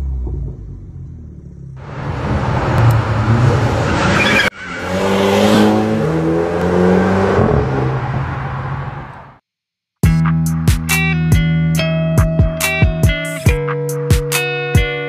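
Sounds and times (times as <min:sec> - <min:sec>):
car engine accelerating: 0:00.0 - 0:09.4.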